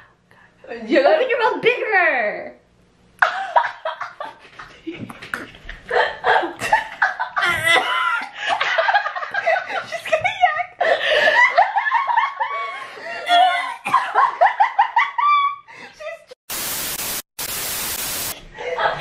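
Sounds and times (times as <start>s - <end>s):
women speaking: 0.6s - 2.6s
young women laughing: 3.2s - 16.4s, 18.6s - 19.0s.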